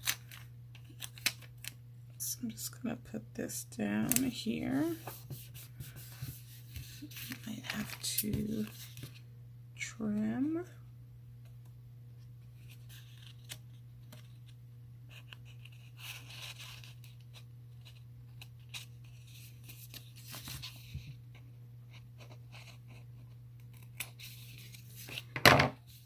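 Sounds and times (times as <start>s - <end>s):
paper rustling: 17.8s - 21.1s.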